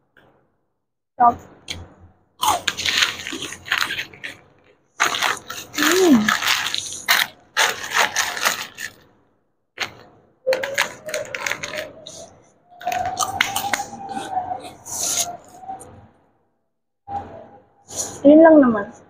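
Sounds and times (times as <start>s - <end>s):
plastic wrapper crinkling: 2.4s - 9.0s, 9.8s - 14.3s.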